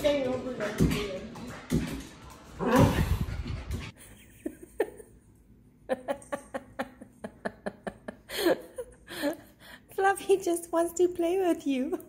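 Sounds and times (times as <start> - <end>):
person giggling: 4.0 - 5.2, 5.9 - 9.5.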